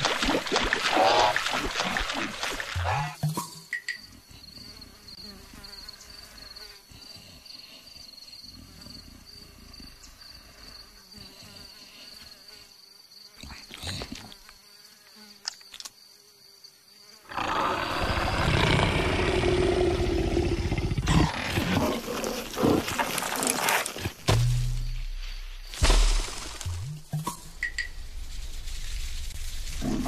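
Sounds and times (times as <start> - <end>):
high insect drone: 1.1 - 26.7
leopard growling: 17.3 - 24.2.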